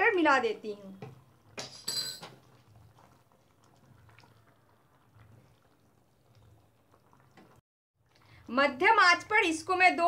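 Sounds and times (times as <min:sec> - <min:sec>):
gravy simmering in pan: 0:00.0 - 0:10.0
soft stirring: 0:01.0 - 0:08.6
metal clink on counter: 0:01.6 - 0:02.3.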